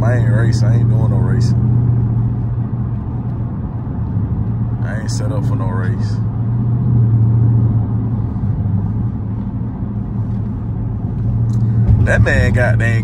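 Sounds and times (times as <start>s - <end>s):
car engine running with low drone: 0.0s - 13.0s.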